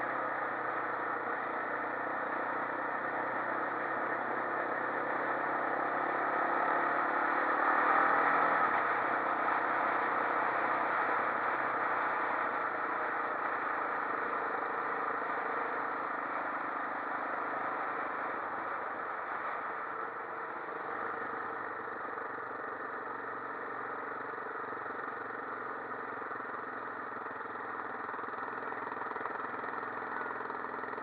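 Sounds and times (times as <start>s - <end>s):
quad bike engine running: 0.0s - 31.0s.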